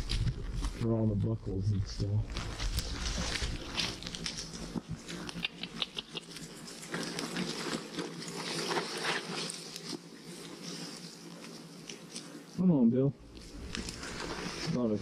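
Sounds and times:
footsteps crunching on rocky trail: 0:02.0 - 0:05.3.

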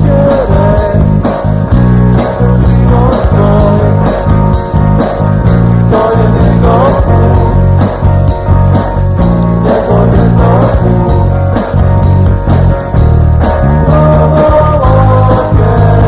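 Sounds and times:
drum machine beat: 0:00.0 - 0:16.0
electric guitar bending notes: 0:00.0 - 0:16.0
sustained bass notes: 0:00.0 - 0:16.0.

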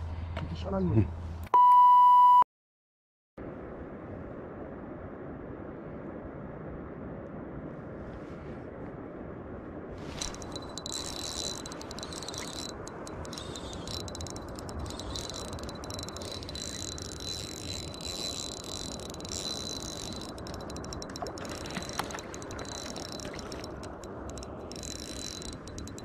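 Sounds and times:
steady low rush: 0:03.4 - 0:08.0
fishing reel drag buzzing: 0:10.1 - 0:26.0.

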